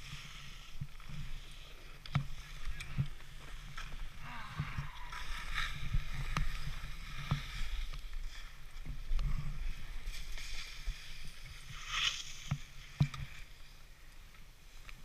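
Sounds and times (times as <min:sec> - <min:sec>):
skis scraping on icy snow: 0:00.0 - 0:13.8.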